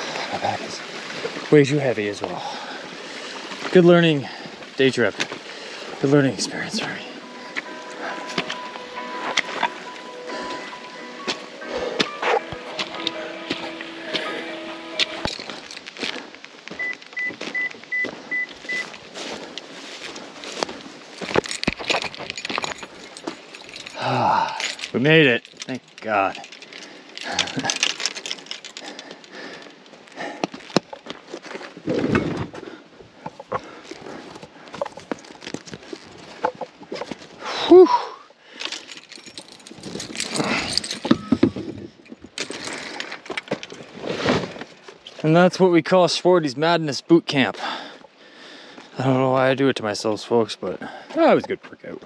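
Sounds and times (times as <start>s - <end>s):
keys jangling: 15.0s - 16.1s, 21.2s - 29.3s, 38.6s - 43.8s
rustling: 15.0s - 37.4s
small metal objects clinking: 15.2s - 16.1s, 21.2s - 29.3s, 38.6s - 43.8s
gear being handled: 19.6s - 31.6s, 38.7s - 44.6s.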